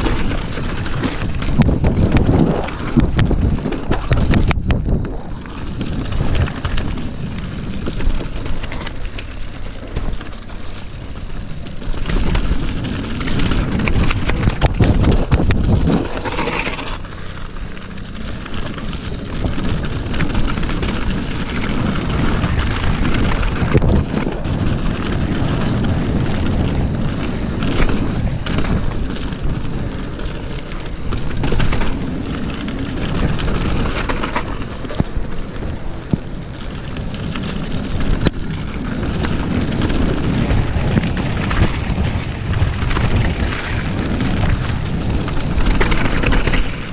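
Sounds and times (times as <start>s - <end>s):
bike rattling: 0.0s - 46.9s
bike tyres grinding over stones: 0.0s - 46.9s
wind buffeting microphone: 0.0s - 46.9s.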